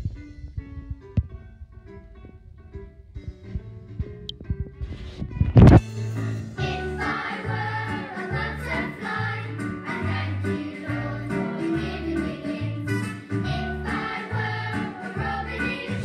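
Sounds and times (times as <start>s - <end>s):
choir singing over backing track: 6.4s - 16.0s.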